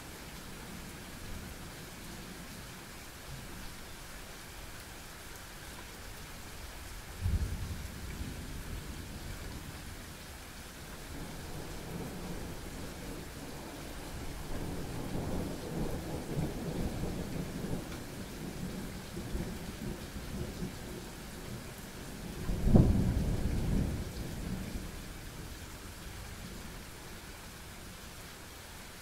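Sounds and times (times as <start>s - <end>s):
steady rain: 0.0s - 29.0s
thunder rumbling: 22.4s - 24.9s.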